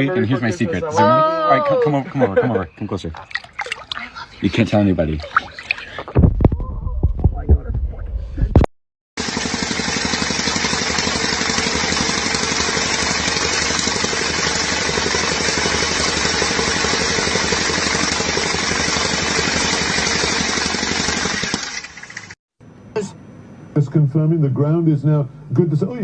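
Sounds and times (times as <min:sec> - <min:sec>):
tamping rammer pounding: 0:09.2 - 0:22.4.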